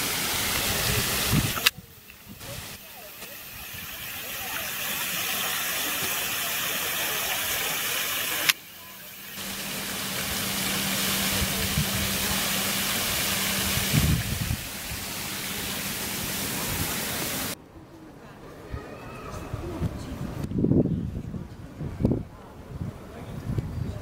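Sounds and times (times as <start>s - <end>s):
fountain water splashing: 0.0s - 17.6s.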